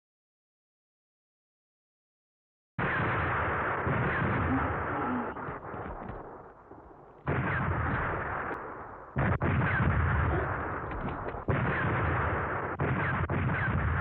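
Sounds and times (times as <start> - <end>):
gunfire and blasts: 2.8 - 14.0.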